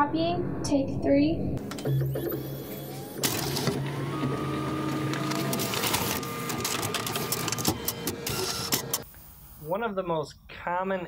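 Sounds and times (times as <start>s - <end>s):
copier whirring and clicking: 1.6s - 9.1s.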